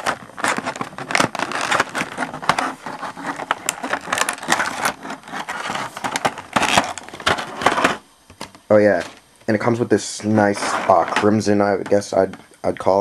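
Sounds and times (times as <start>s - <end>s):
plastic packaging crinkling: 0.0s - 8.0s, 8.8s - 11.7s.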